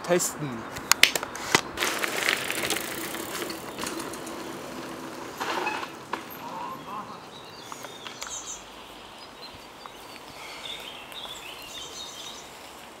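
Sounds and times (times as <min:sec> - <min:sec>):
small birds chirping: 0:06.2 - 0:13.0.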